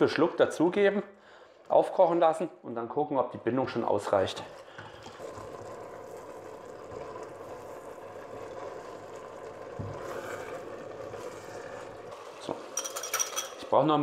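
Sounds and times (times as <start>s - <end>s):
pot bubbling and hissing: 3.6s - 14.0s
spoon stirring in pot: 4.6s - 13.7s.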